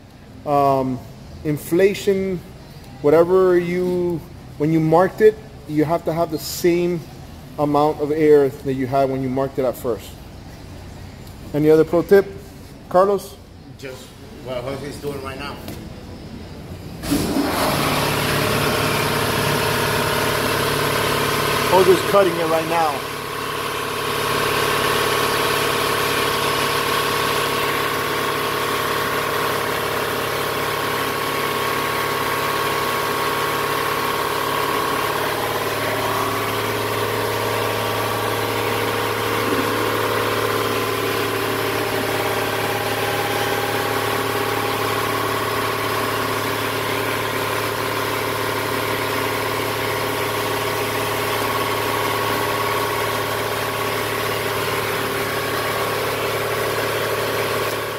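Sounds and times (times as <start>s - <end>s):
machine humming: 16.2s - 57.9s.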